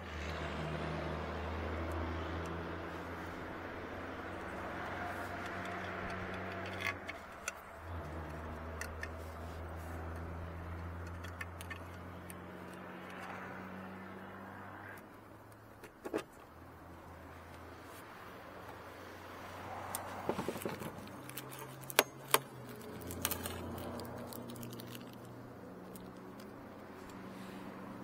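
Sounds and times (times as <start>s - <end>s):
vehicle engine humming: 0.0s - 28.0s
light clicks and metallic rattles: 4.2s - 13.5s, 19.9s - 27.3s.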